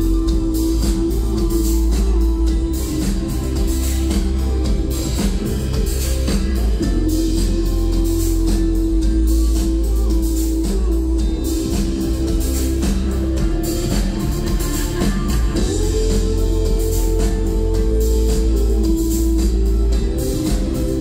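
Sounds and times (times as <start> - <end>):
live rock band playing: 0.0 - 21.0.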